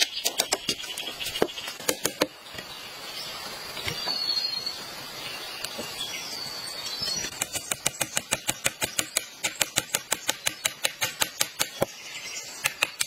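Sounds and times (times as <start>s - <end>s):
rural background: 0.0s - 13.0s.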